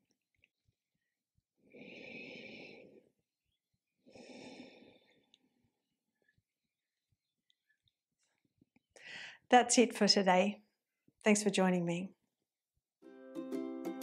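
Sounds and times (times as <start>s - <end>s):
woman breathing softly: 1.6s - 3.3s, 4.0s - 6.4s, 9.0s - 9.5s.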